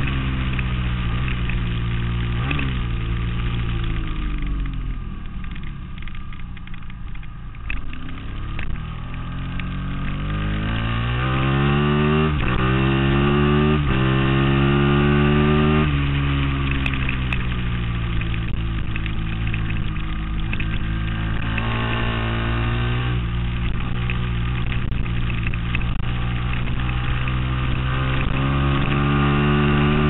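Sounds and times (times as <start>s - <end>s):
motorcycle engine revving: 0.0s - 30.0s.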